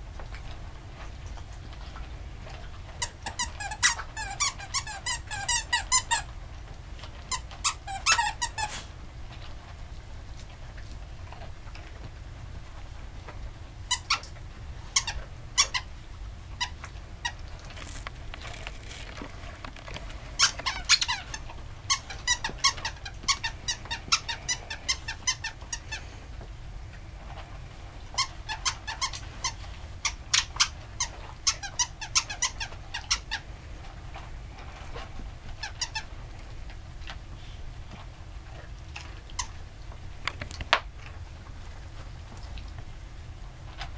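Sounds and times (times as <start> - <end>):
squeaky toy squeaking: 3.3 - 6.2, 7.3 - 8.7, 20.4 - 25.6.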